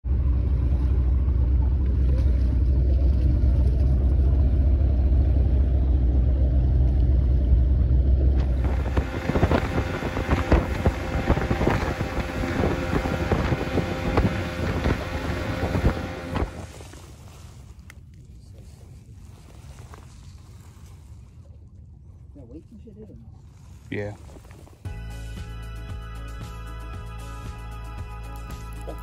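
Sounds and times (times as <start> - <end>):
small boat rumbling: 0.0 - 29.0
wind buffeting microphone: 8.4 - 17.5.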